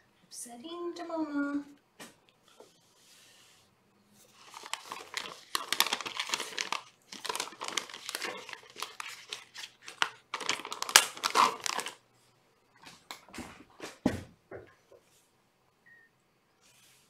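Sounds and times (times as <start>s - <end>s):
crinkling and rustling: 4.2s - 12.0s.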